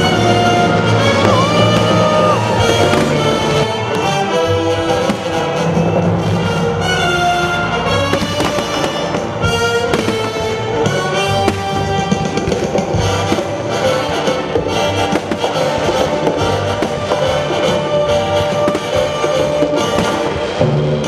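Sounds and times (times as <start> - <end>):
fireworks bursting and crackling: 0.0 - 21.0
music playing: 0.0 - 21.0.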